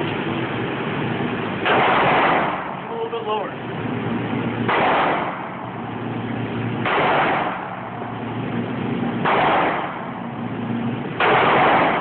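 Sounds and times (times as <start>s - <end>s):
pistol shots echoing indoors: 1.7s - 2.7s, 4.7s - 5.5s, 6.8s - 7.9s, 9.2s - 10.1s, 11.2s - 12.0s.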